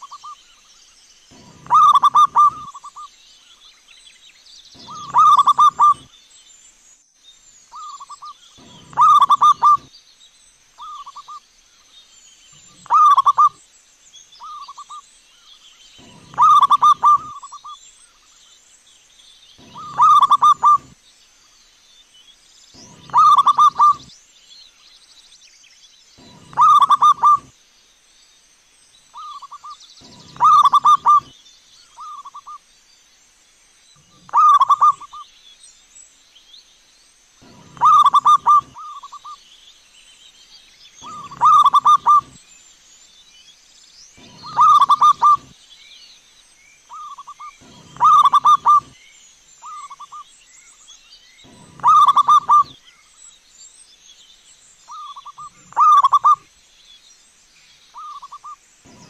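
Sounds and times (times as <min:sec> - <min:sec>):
dove rolling coo: 0:01.3 - 0:03.0, 0:04.8 - 0:06.1, 0:07.8 - 0:09.9, 0:12.7 - 0:13.6, 0:16.0 - 0:17.8, 0:19.6 - 0:21.0, 0:22.8 - 0:24.1, 0:26.2 - 0:27.5, 0:29.2 - 0:31.3, 0:34.1 - 0:35.2, 0:37.4 - 0:39.4, 0:41.0 - 0:42.4, 0:44.2 - 0:45.5, 0:46.9 - 0:49.0, 0:51.5 - 0:52.8, 0:54.9 - 0:56.4.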